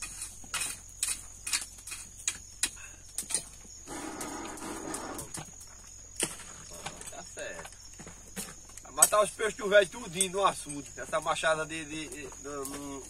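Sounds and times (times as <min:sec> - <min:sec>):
drawn-out animal call: 0:03.8 - 0:05.4.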